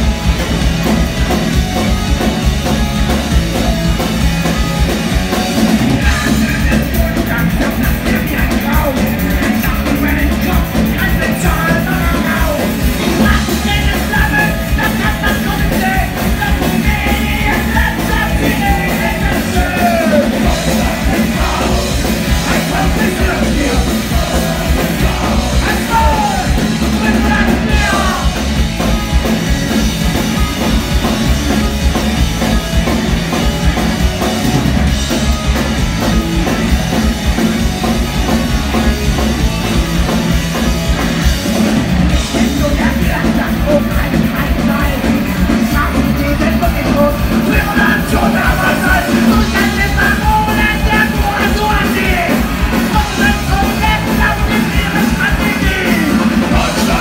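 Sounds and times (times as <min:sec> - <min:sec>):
punk rock band playing live: 0:00.0 - 0:57.0
shouted singing: 0:13.7 - 0:28.6, 0:47.5 - 0:57.0.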